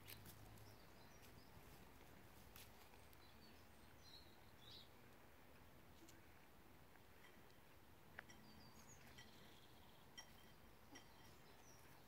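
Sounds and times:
faint high bird chirps: 0:08.3 - 0:12.0.

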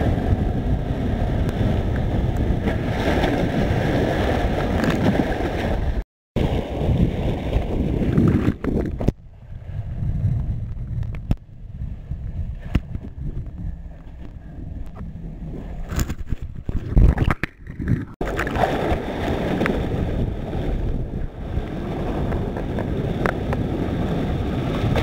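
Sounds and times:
wind buffeting microphone: 0:00.0 - 0:25.0.

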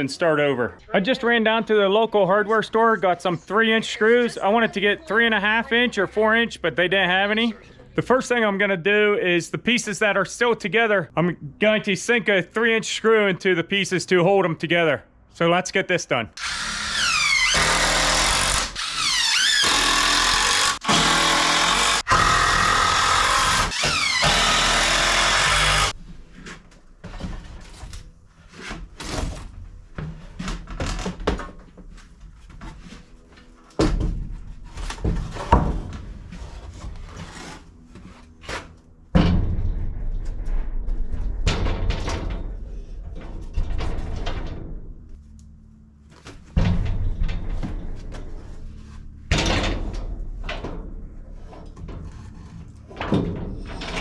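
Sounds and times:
cordless drill driving screws: 0:16.4 - 0:25.9
wooden knocks and thunks: 0:33.8 - 0:37.1.

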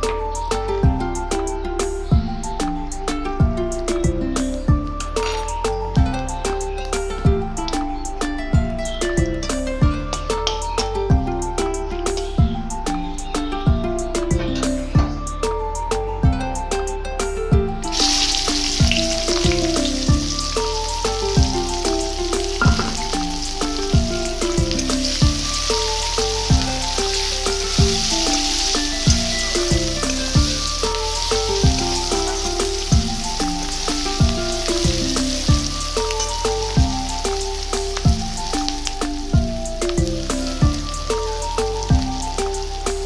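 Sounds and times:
background music with a beat: 0:00.0 - 0:43.0
onions sizzling in hot oil: 0:17.9 - 0:43.0.

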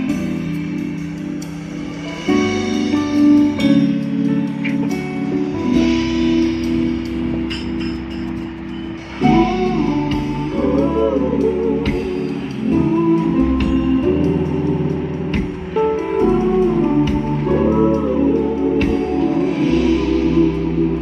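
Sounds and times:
music with guitar and singing: 0:00.0 - 0:21.0.

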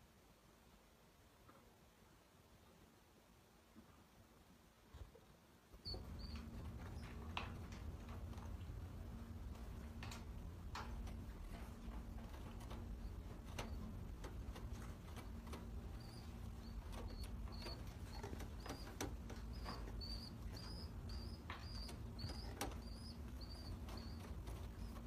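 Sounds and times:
faint clicks and rustles: 0:04.8 - 0:25.0
pigeon chick begging squeaks: 0:05.8 - 0:07.6, 0:12.6 - 0:25.0.

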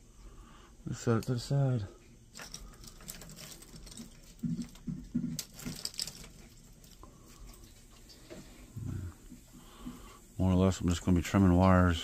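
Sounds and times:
light clicks and rustles: 0:01.1 - 0:10.2.

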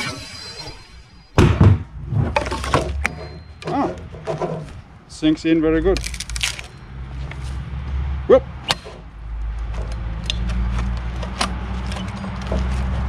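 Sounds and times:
wood creaking: 0:00.0 - 0:05.0
sharp wood crack: 0:05.9 - 0:06.8.

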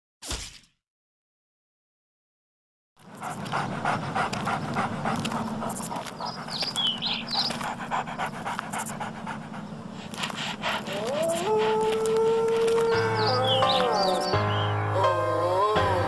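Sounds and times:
dog panting: 0:03.0 - 0:14.4.

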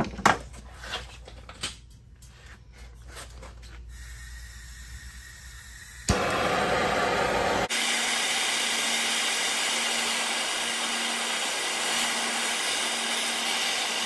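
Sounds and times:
gas torch flame burning: 0:03.9 - 0:14.0.

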